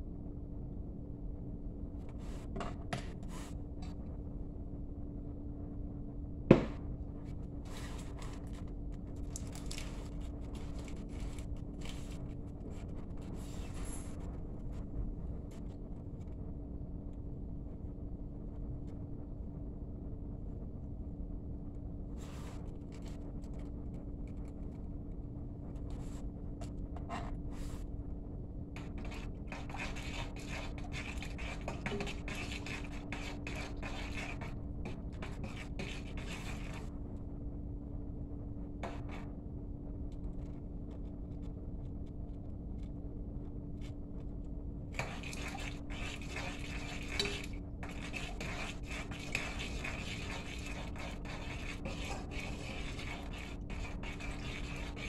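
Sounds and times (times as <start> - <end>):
steady low hum: 0.0 - 55.0
utensil scraping in container: 28.8 - 36.9, 45.0 - 55.0.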